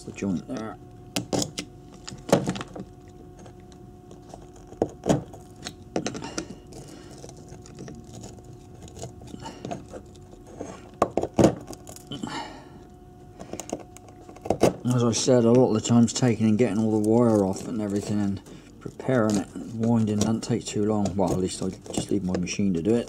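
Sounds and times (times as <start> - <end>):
faint steady hum: 0.0 - 23.0
screwdriver scraping copper winding: 16.1 - 23.0.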